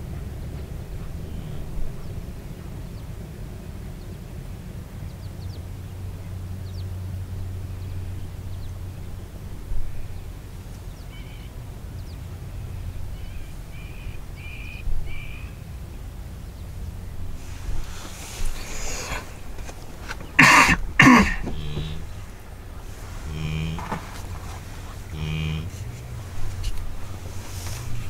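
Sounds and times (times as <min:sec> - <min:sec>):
birds chirping: 0:00.0 - 0:04.2, 0:04.9 - 0:28.0
low steady rumble: 0:00.0 - 0:28.0
brief thumps: 0:18.4 - 0:22.2.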